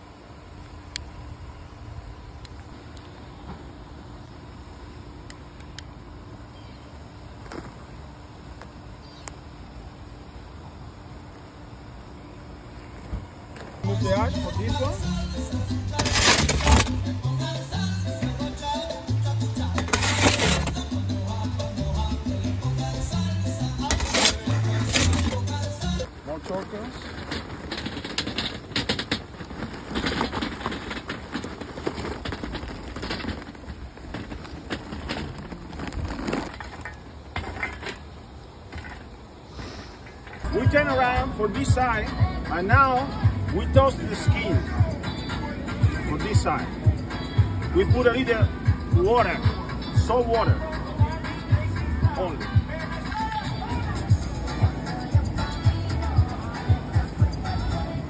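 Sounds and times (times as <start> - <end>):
fire crackles: 7.3 - 58.0
charcoal fire rushing: 12.7 - 58.0.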